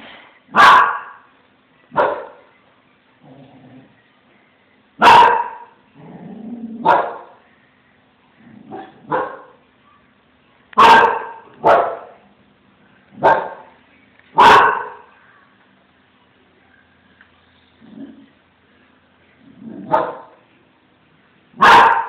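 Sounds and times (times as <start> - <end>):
dog barking: 0.5 - 1.2, 1.9 - 2.4, 5.0 - 5.8, 6.8 - 7.4, 8.7 - 9.6, 10.8 - 12.2, 13.2 - 13.7, 14.4 - 15.1, 19.9 - 20.4, 21.6 - 22.0.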